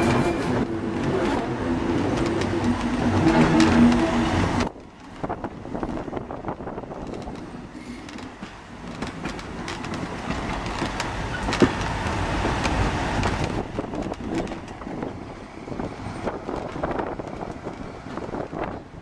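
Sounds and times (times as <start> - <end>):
train wagon rumbling on track: 0.0 - 19.0
wheel clicks over rail joints: 6.9 - 15.1.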